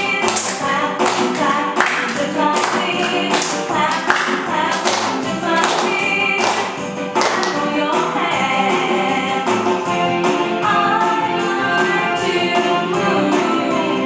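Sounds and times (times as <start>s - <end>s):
upbeat dance music with singer: 0.0s - 9.8s.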